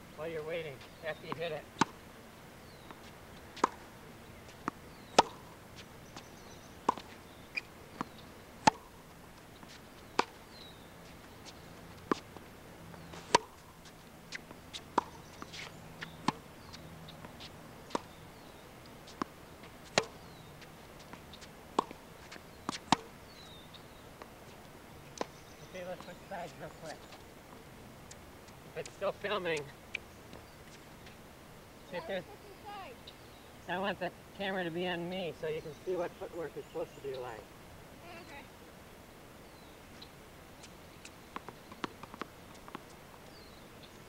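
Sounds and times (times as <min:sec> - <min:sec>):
tennis balls struck with rackets: 0:02.8 - 0:05.9, 0:06.8 - 0:09.0, 0:09.6 - 0:10.5, 0:13.0 - 0:13.8, 0:14.8 - 0:20.4, 0:21.0 - 0:22.0, 0:22.7 - 0:23.6, 0:41.4 - 0:42.9
balls bouncing on hard court: 0:04.5 - 0:05.5.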